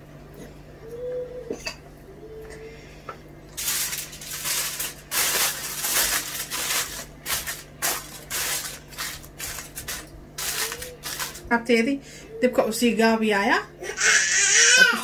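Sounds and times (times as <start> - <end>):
aluminium foil crinkling: 3.6 - 11.6.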